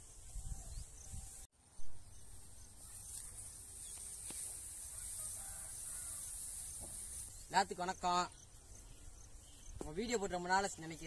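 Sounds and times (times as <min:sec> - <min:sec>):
wind rumble on microphone: 0:00.0 - 0:02.0
steady high hiss: 0:00.0 - 0:11.0.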